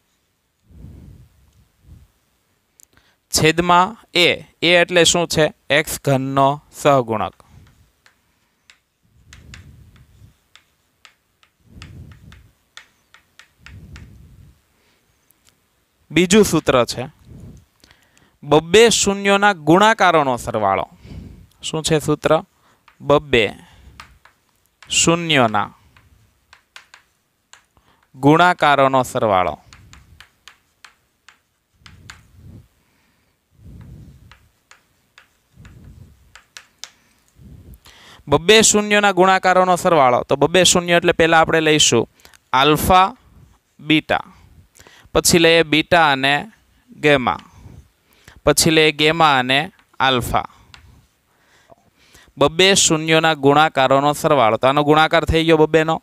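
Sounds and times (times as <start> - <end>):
dull chalk strokes: 7.1 - 15.3, 20.5 - 37.8, 49.1 - 51.3
chalk tapping on blackboard: 7.3 - 14.2, 21.9 - 32.6, 33.7 - 37.4, 49.6 - 51.2.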